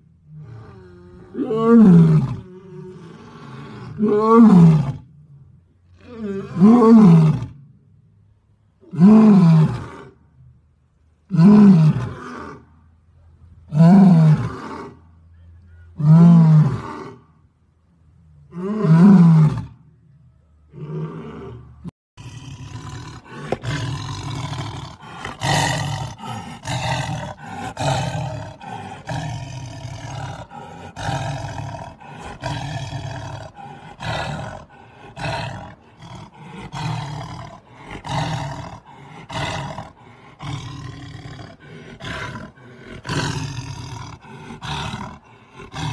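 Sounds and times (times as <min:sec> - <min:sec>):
tiger growling and snarling: 0:00.2 - 0:07.6, 0:20.7 - 0:45.9
lion roaring: 0:00.3 - 0:05.1, 0:20.7 - 0:45.9.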